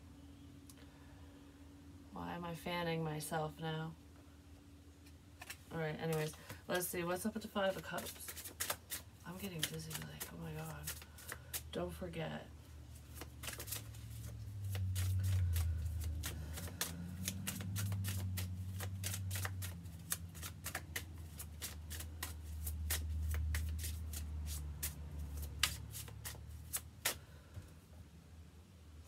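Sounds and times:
cards being shuffled: 0:05.0 - 0:12.0, 0:12.9 - 0:27.3
low hum: 0:09.2 - 0:21.5.

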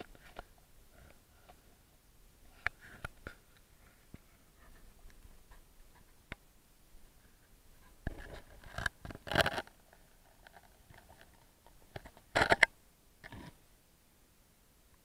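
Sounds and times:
scratchy scraping and crackling: 0:07.8 - 0:13.6.

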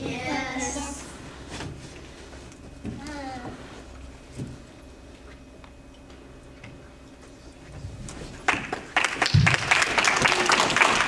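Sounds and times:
faint steady hum: 0:00.0 - 0:11.0
audience applause: 0:08.5 - 0:11.0.

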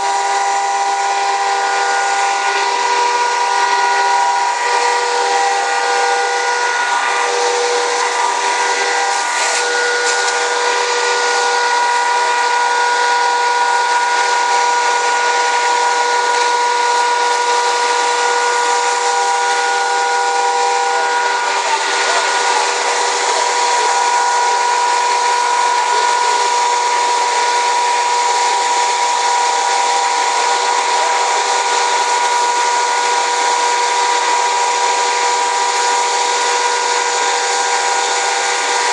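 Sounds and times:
constant high whine: 0:00.0 - 0:38.9
fire hose water rushing hiss: 0:13.6 - 0:38.9.

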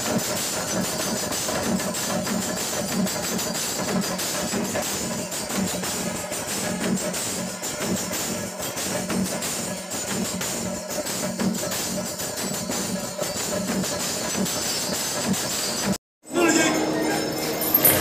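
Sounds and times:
hand cymbals clashing: 0:16.4 - 0:18.0.

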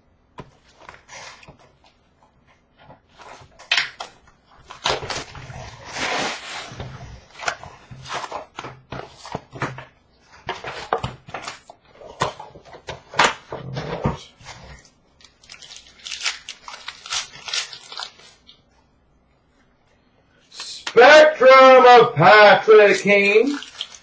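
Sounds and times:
foil wrappers crinkling: 0:15.2 - 0:18.6, 0:23.1 - 0:24.0.

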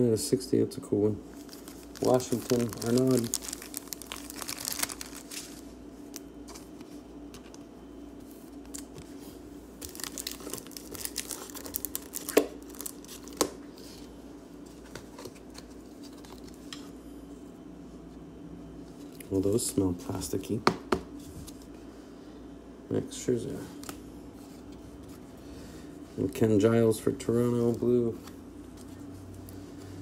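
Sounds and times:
plastic wrapper crinkling: 0:01.3 - 0:06.8, 0:09.8 - 0:13.6
trading cards being handled: 0:01.4 - 0:09.2.

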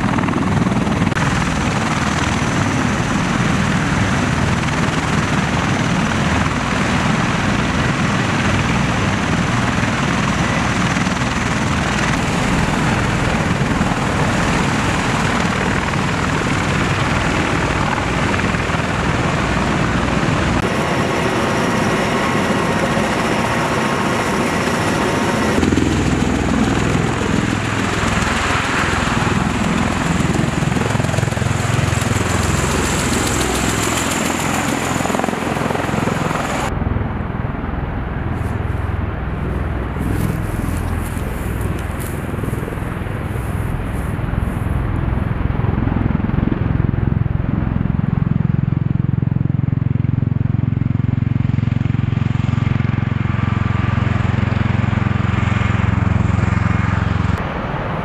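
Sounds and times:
aircraft rotor and engine noise: 0:00.0 - 0:58.0.

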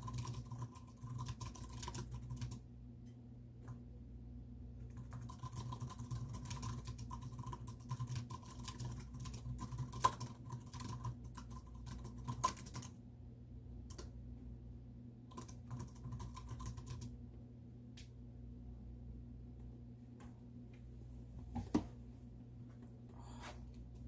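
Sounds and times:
typing on computer keyboard: 0:00.0 - 0:02.6, 0:04.9 - 0:13.0, 0:13.9 - 0:14.1, 0:15.3 - 0:17.1
steady low hum: 0:00.0 - 0:24.0.

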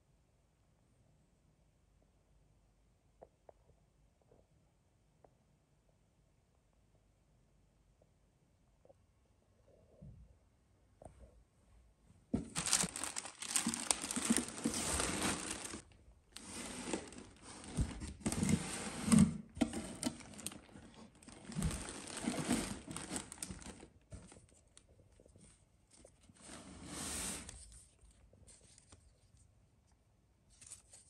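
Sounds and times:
packaging crinkling and rustling: 0:12.4 - 0:26.5.

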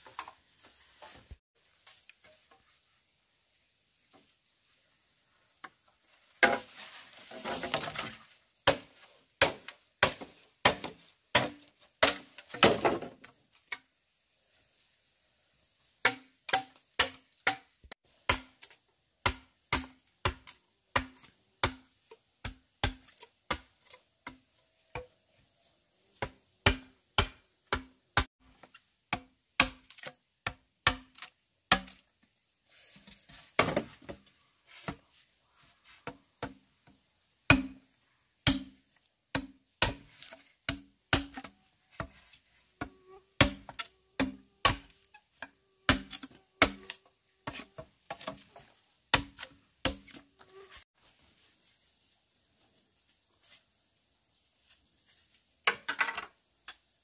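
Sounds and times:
scraping rustle: 0:06.6 - 0:08.4.

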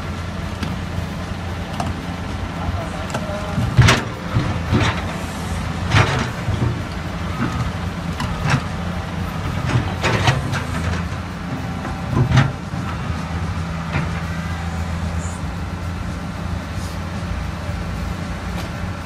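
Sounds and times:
excavator diesel engine running: 0:00.0 - 0:19.0
bucket clanking and scraping: 0:01.7 - 0:13.0.

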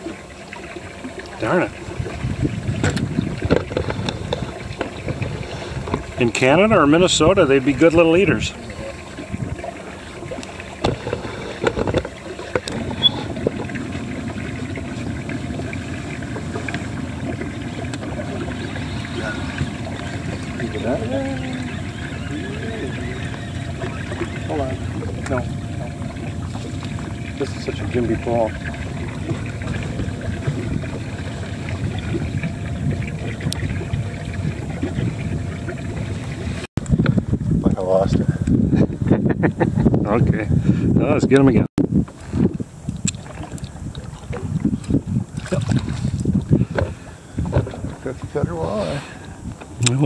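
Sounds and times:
waves lapping against boat hull: 0:00.0 - 0:50.0
wind on microphone: 0:01.4 - 0:50.0.

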